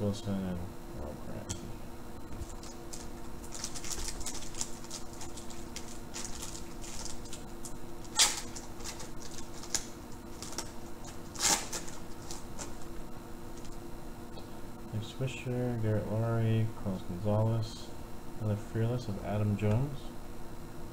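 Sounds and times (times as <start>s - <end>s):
plastic wrapper crinkling: 2.4s - 13.0s.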